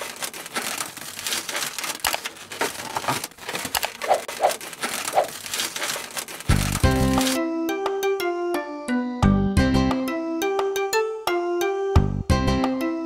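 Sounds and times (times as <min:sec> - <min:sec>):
balloons rubbing and squeaking: 0:00.0 - 0:07.4.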